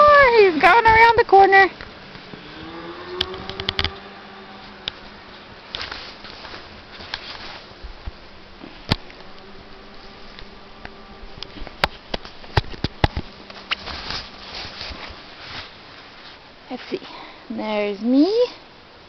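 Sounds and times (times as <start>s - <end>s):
truck engine humming: 0.0s - 16.6s
tyres rolling through snow: 0.0s - 17.1s.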